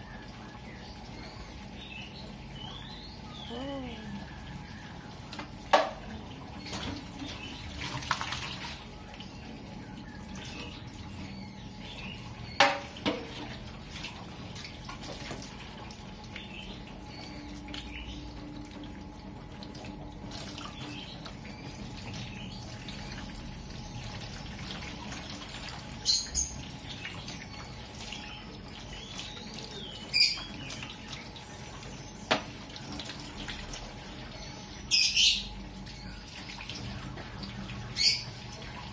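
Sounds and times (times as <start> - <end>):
water splashes: 5.3 - 9.6.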